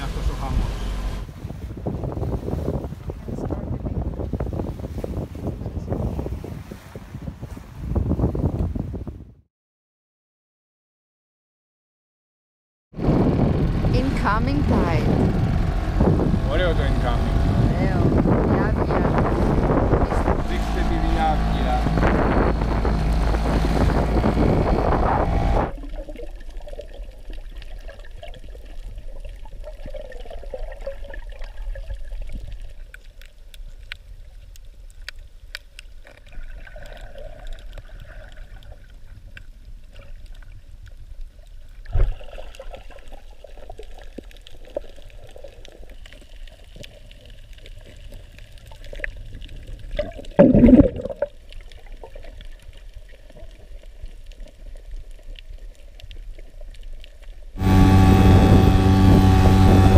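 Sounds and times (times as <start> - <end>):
water rushing past dinghy: 0.0 - 9.0, 13.0 - 32.7, 49.0 - 52.4, 57.5 - 59.9
muffled underwater water movement: 13.1 - 59.9.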